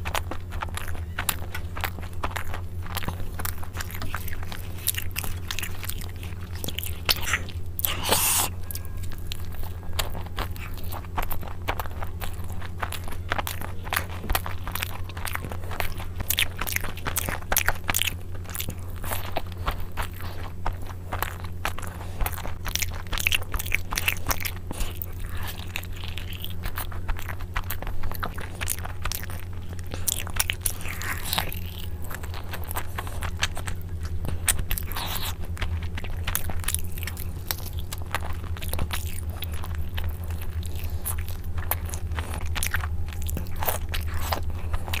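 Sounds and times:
person chewing food: 0:00.0 - 0:45.0
steady low hum: 0:00.0 - 0:45.0
mouth clicks: 0:07.0 - 0:08.7.

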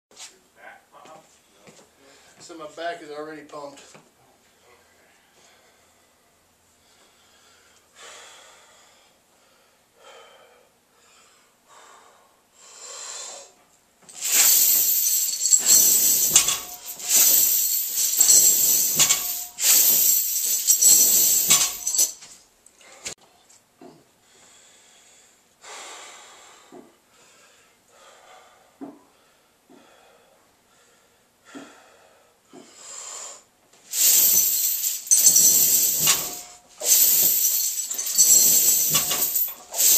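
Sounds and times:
heavy breathing: 0:00.6 - 0:02.5, 0:03.9 - 0:13.6, 0:22.8 - 0:23.2, 0:23.9 - 0:35.1
chains rattling: 0:14.1 - 0:22.3, 0:33.9 - 0:39.9.

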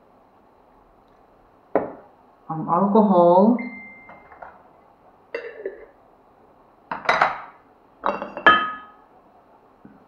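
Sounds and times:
glass jars clinking: 0:05.4 - 0:05.9, 0:08.0 - 0:09.0.

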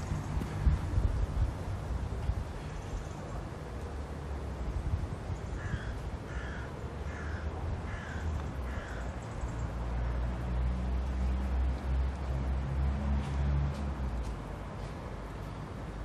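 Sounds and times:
crow cawing: 0:05.6 - 0:09.1.

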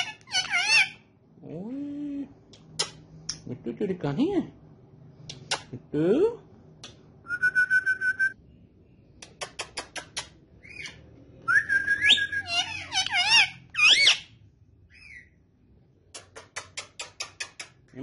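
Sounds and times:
parakeet whistling and chattering: 0:09.6 - 0:14.3, 0:14.9 - 0:15.4.

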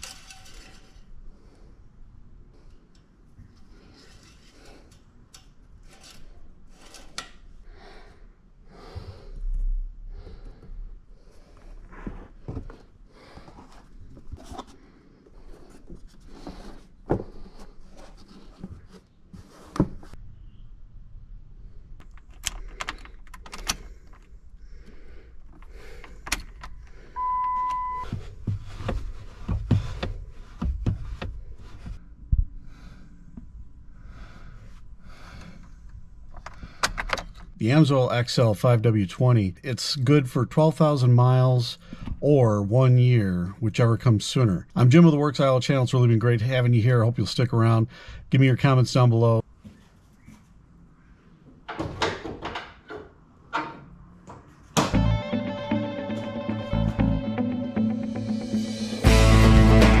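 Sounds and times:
dull thuds: 0:28.0 - 0:32.6.

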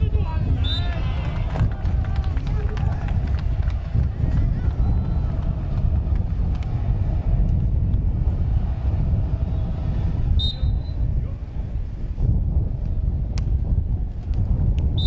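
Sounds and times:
low open-air rumble: 0:00.0 - 0:15.0
referee's whistle: 0:00.6 - 0:01.0, 0:10.4 - 0:11.0.

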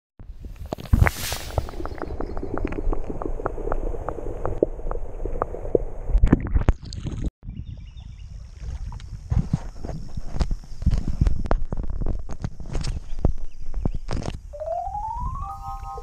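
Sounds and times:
water gurgling underwater: 0:01.5 - 0:07.2.

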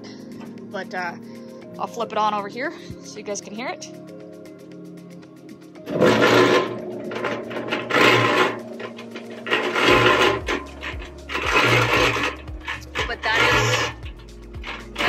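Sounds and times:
cement mixer rattling grind: 0:05.9 - 0:15.0.

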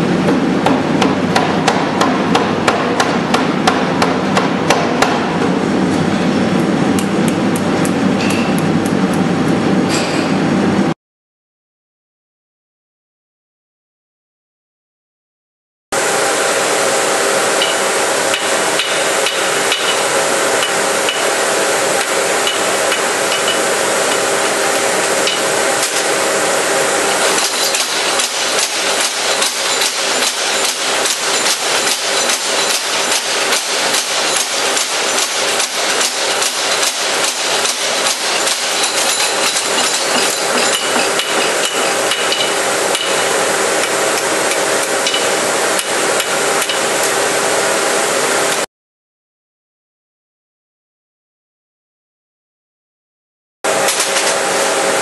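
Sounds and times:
machine hum: 0:00.0 - 0:11.0, 0:16.0 - 0:48.7.

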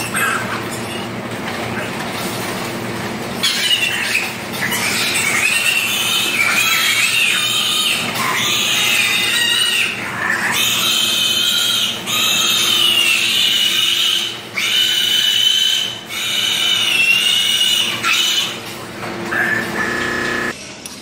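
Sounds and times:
piglet squealing: 0:00.0 - 0:01.1, 0:03.4 - 0:18.6, 0:19.3 - 0:20.5.

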